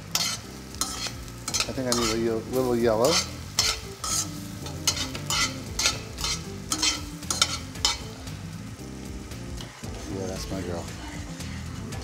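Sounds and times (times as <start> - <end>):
metal tongs scraping pan: 0.0 - 8.1
low sizzle of frying: 0.0 - 12.0.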